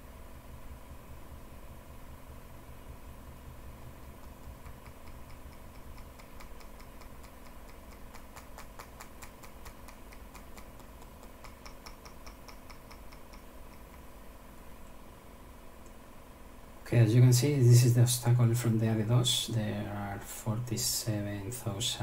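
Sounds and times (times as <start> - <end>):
faint electrical hum: 0.0 - 22.0
computer mouse clicks: 4.2 - 14.1.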